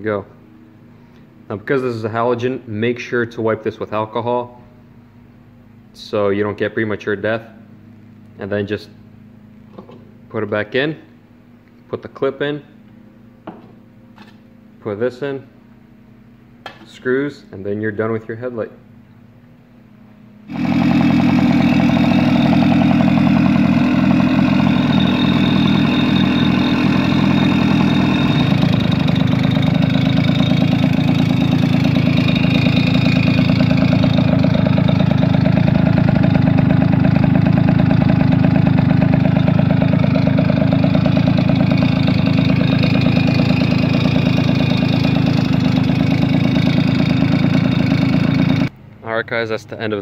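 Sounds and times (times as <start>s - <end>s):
moped engine idling: 20.5s - 48.7s.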